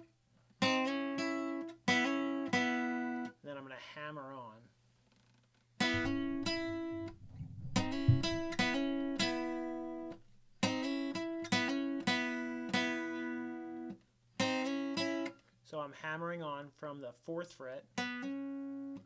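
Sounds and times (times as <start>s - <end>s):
acoustic guitar lick: 5.9s - 11.1s
hard low thump: 6.0s - 10.5s.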